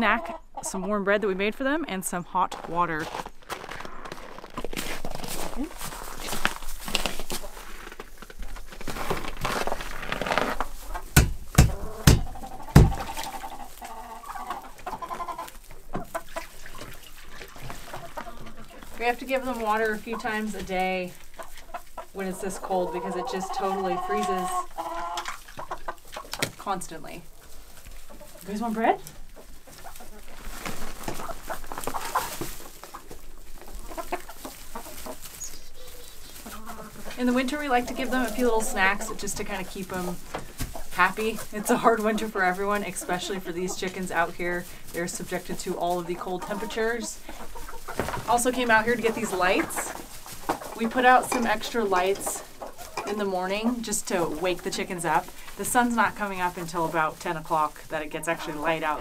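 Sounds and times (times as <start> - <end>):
hens clucking: 0.0 - 9.9, 10.5 - 59.0
sharp knocks: 11.2 - 13.0.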